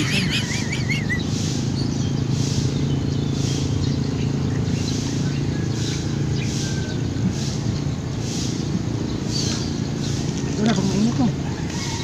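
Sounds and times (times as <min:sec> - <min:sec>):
faint bird chirps: 0:00.0 - 0:02.1
low motor hum: 0:00.0 - 0:11.4.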